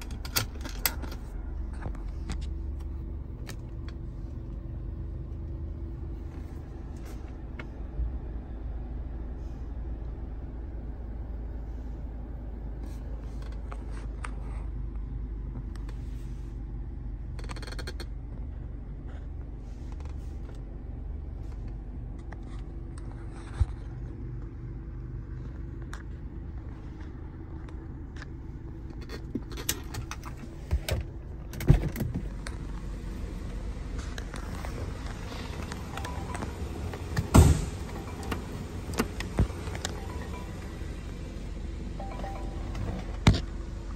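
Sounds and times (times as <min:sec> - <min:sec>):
car engine idling: 0:00.0 - 0:14.0, 0:24.7 - 0:43.9.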